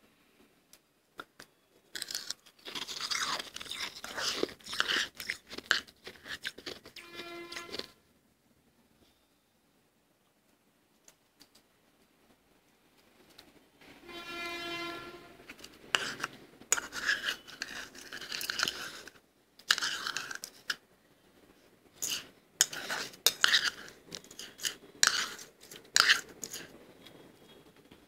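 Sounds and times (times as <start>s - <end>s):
chewing crunchy frost: 2.0s - 8.0s, 15.6s - 19.1s, 19.7s - 20.8s, 22.0s - 26.8s.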